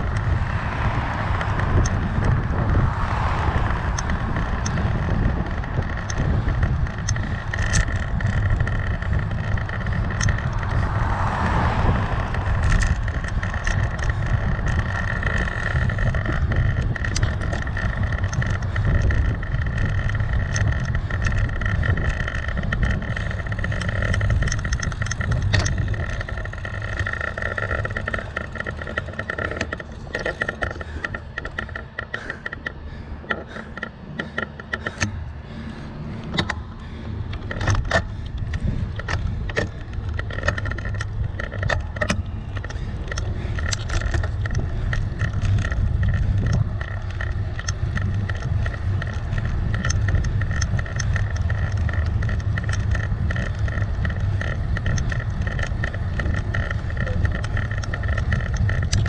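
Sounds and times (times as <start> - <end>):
cars passing: 0.0 - 59.0
road noise: 0.0 - 59.0
steady whine: 0.0 - 59.0
wind rush: 0.0 - 59.0.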